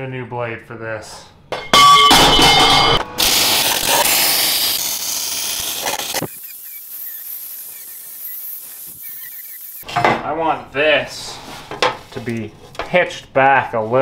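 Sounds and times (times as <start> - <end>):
chop saw cutting steel pipe: 3.2 - 6.8
welder crackling hiss: 3.2 - 9.8
angle grinder grinding steel: 3.2 - 9.9.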